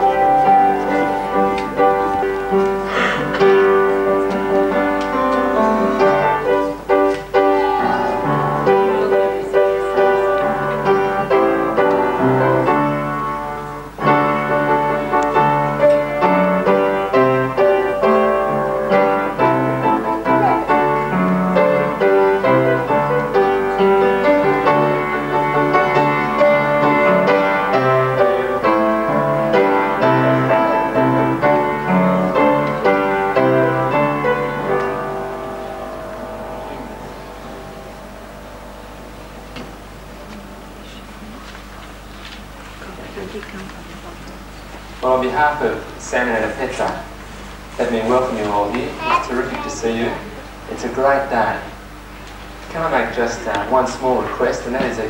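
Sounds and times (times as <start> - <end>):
piano playing: 0.0 - 42.6.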